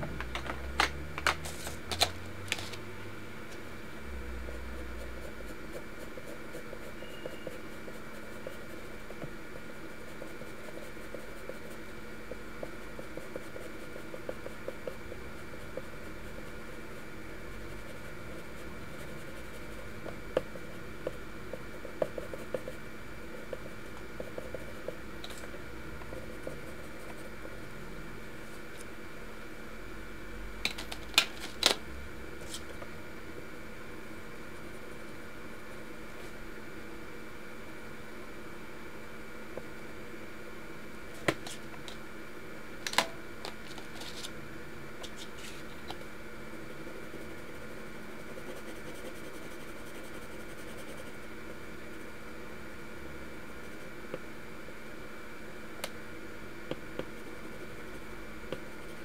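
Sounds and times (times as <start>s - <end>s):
steady hum: 0.0s - 59.0s
pencils clicking and tapping: 0.2s - 2.8s
pencil scratching on paper: 4.5s - 22.8s, 47.0s - 52.2s.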